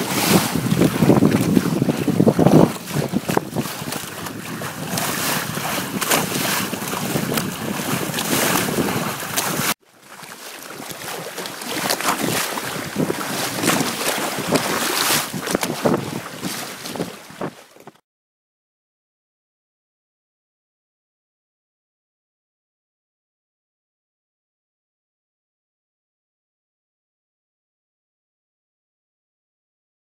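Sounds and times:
wind buffeting microphone: 0.0s - 9.8s, 11.8s - 18.0s
water rushing along boat hull: 0.0s - 18.0s
water splashing: 0.0s - 18.0s.

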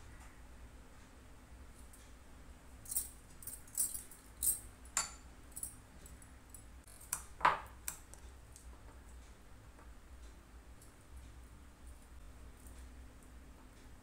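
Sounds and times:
glass bangles jingling: 2.8s - 4.7s.

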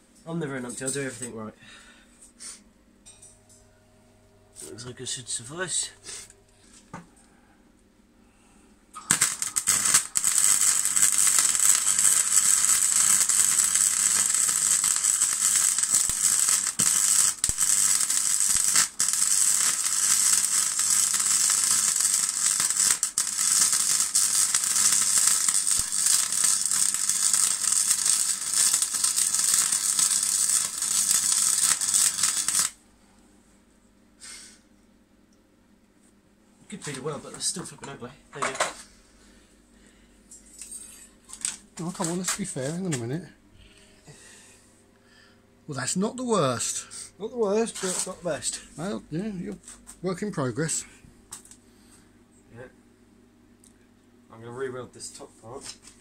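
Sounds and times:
welding arc crackling and sizzling: 8.9s - 32.8s, 40.5s - 43.3s, 45.7s - 51.6s.

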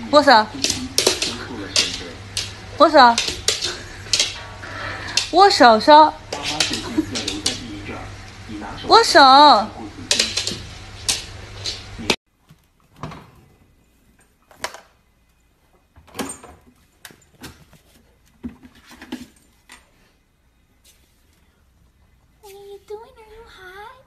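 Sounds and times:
dog thumping on wooden floor: 0.5s - 5.3s.

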